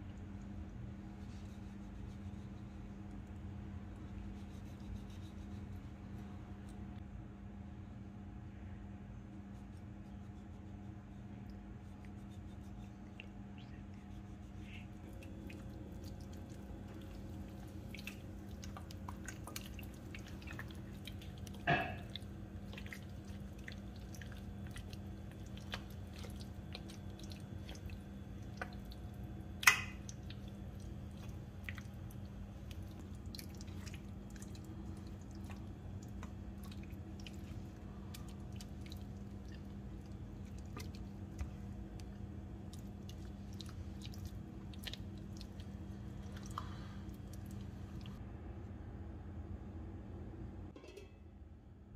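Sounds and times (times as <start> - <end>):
steady low hum: 0.0 - 51.9
hands squelching marinade: 10.1 - 48.2.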